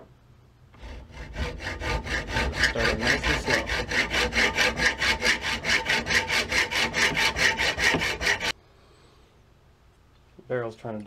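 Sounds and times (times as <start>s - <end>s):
hacksaw cutting steel: 0.8s - 8.5s.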